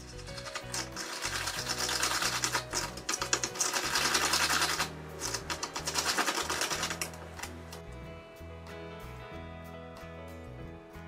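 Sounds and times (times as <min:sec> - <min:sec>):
stick scraping in plastic cup: 0:00.0 - 0:07.2
background music: 0:00.0 - 0:11.0.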